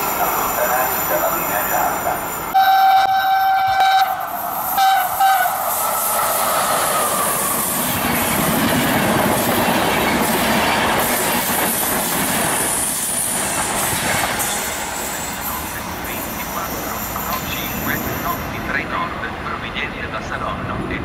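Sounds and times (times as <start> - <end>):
train wheels on rails: 0.0 - 21.0
train horn blasts: 2.6 - 5.6.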